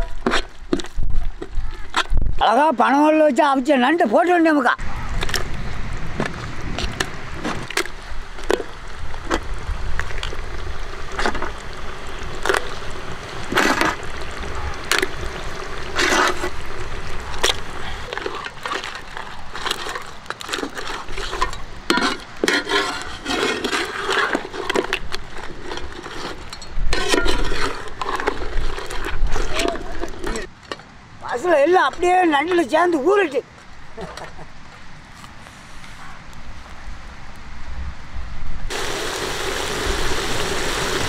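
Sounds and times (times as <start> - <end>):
gravy sloshing: 10.0 - 30.5.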